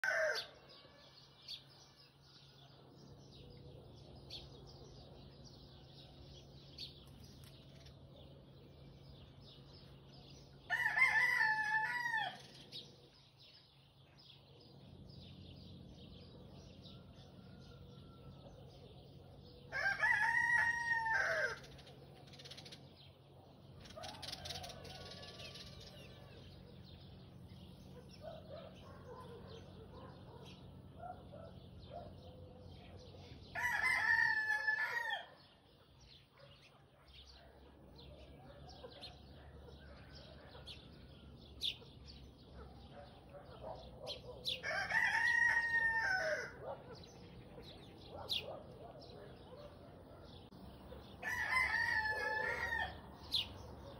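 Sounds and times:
rooster crowing: 0.0s - 1.2s, 10.7s - 12.6s, 19.7s - 21.7s, 24.0s - 26.6s, 33.5s - 35.4s, 44.6s - 46.6s, 51.2s - 53.4s
small birds twittering: 0.0s - 53.9s.

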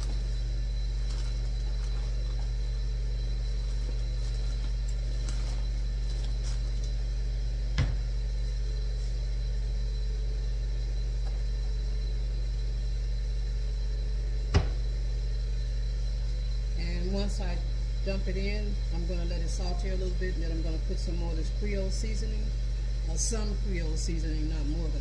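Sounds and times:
faint high whine: 0.0s - 25.0s
low electric hum: 0.0s - 25.0s.

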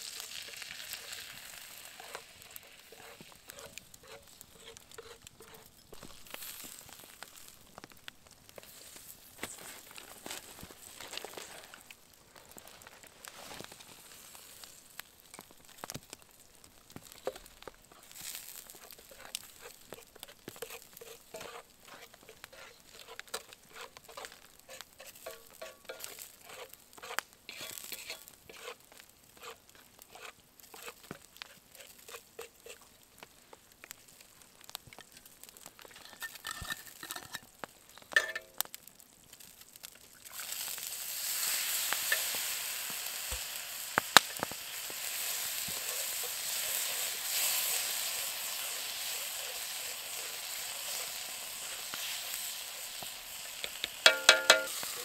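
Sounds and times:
utensil scraping pan: 0.0s - 6.4s, 17.2s - 28.8s, 29.4s - 32.8s, 35.8s - 37.5s, 41.6s - 42.6s, 44.3s - 55.0s
food sizzling and crackling: 0.0s - 55.0s.

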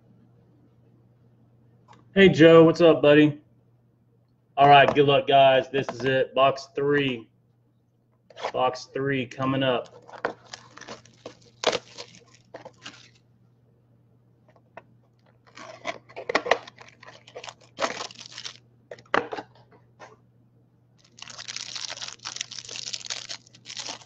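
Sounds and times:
plastic wrapping tearing and crinkling: 9.8s - 13.2s, 15.4s - 18.6s, 21.0s - 24.0s.

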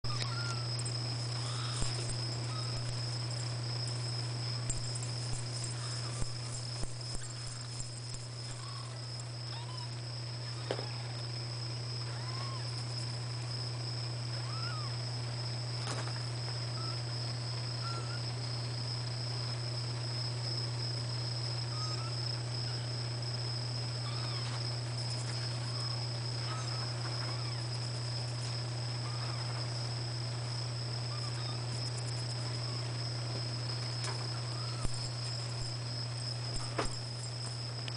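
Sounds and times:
high-pitched whine: 0.0s - 13.7s
low electrical hum: 0.0s - 37.9s
faint short squeaks: 0.1s - 0.7s.

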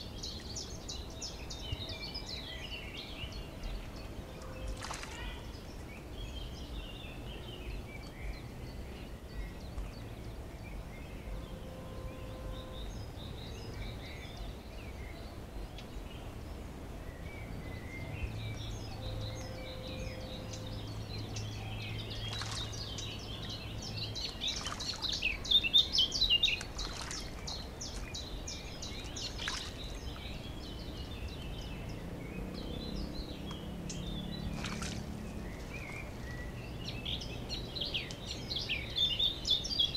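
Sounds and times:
songbirds chirping and singing: 0.0s - 39.9s.

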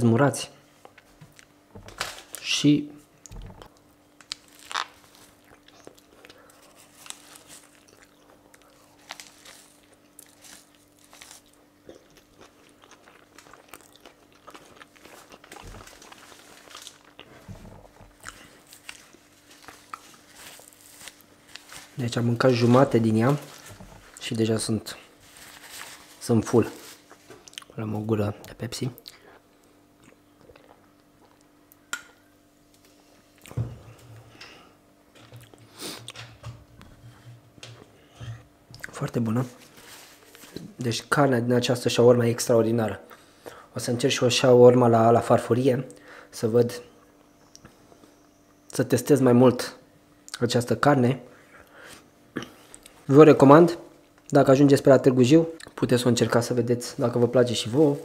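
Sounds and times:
faint steady hum: 0.0s - 58.0s
person chewing food: 3.2s - 21.8s, 27.0s - 27.8s, 29.0s - 32.2s, 35.3s - 36.2s
person gulping from plastic bottle: 3.3s - 3.8s, 17.2s - 18.5s.

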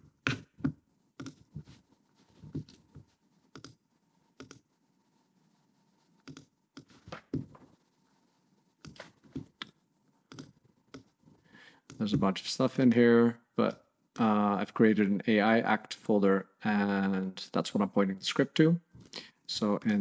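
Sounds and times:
mouse and keyboard clicks: 6.3s - 6.9s.

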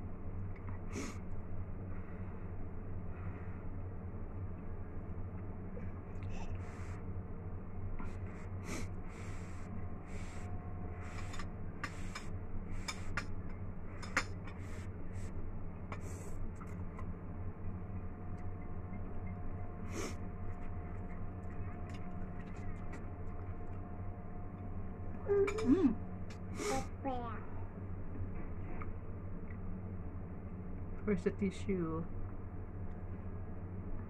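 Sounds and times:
steady low hum: 0.0s - 34.0s
person breathing: 6.2s - 7.1s, 8.1s - 11.3s.

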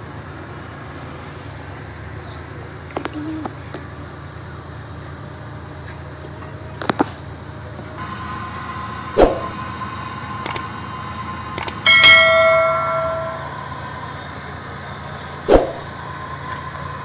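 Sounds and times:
steady low hum: 0.0s - 17.0s
bright bell chime: 11.9s - 14.0s.

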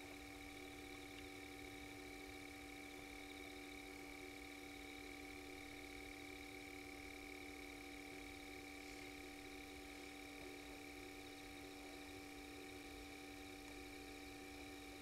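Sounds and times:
faint steady drone: 0.0s - 15.0s.

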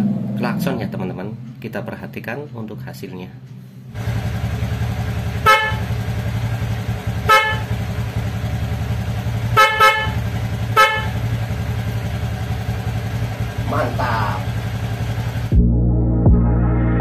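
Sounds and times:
scooter engine idling: 3.9s - 15.6s
scooter horn beeps: 5.4s - 6.0s, 7.1s - 7.9s, 9.4s - 11.4s.

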